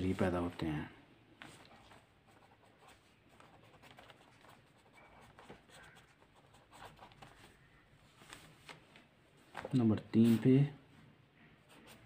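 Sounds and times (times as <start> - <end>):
pen scratching on paper: 1.5 - 7.5.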